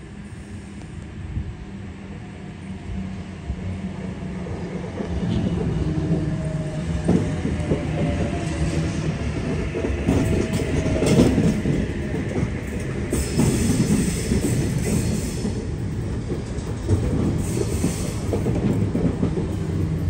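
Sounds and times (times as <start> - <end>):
train hiss: 0.0 - 2.7, 11.3 - 20.0
train wheels rumbling on rails: 0.0 - 20.0.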